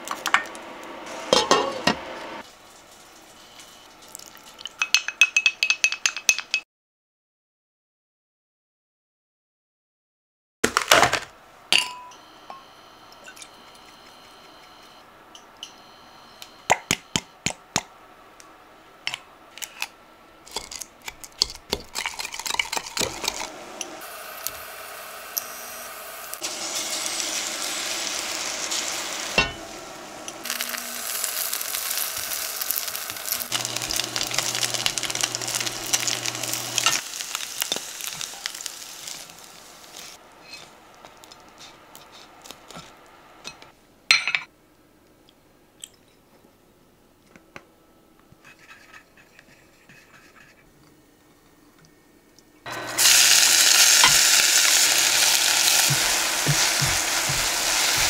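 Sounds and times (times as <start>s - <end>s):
utensils clinking against dishes: 1.3s - 2.0s, 29.4s - 29.7s
food sizzling in a frying pan: 23.3s - 42.9s, 52.7s - 58.0s.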